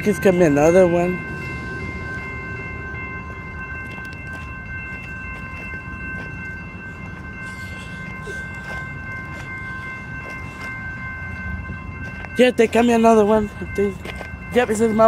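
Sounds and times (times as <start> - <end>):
low rumble: 0.0 - 7.4
crossing warning bell ringing: 0.0 - 15.0.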